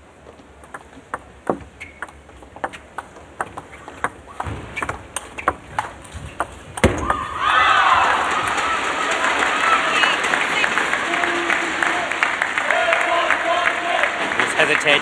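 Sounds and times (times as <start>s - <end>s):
table tennis ball clicking: 0.6s - 7.2s.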